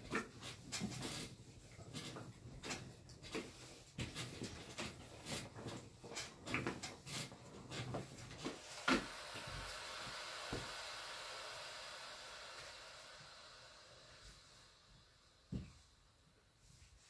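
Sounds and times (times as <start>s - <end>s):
steam hissing: 7.2s - 17.0s.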